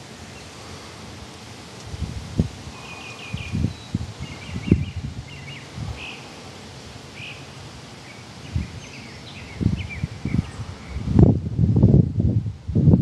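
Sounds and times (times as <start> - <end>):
low rumbles on microphone: 1.9 - 6.1, 9.5 - 13.0
small birds chirping: 2.7 - 6.5, 7.1 - 11.2.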